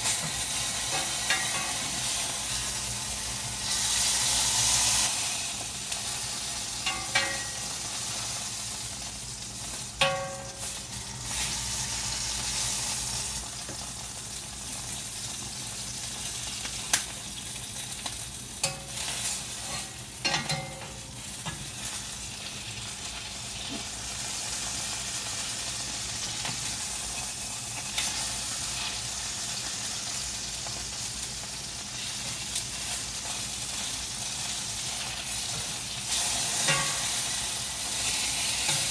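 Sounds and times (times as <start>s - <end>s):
tongs knocking and scraping pan: 0.0s - 2.6s, 6.8s - 7.8s, 10.0s - 11.4s, 18.6s - 22.0s, 34.9s - 38.9s
chicken sizzling in skillet: 0.0s - 38.9s.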